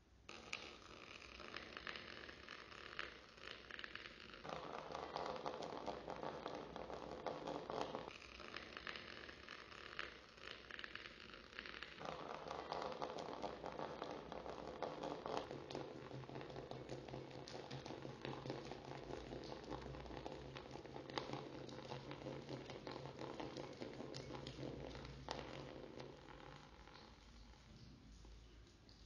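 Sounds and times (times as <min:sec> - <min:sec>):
low steady hum: 0:15.5 - 0:29.0.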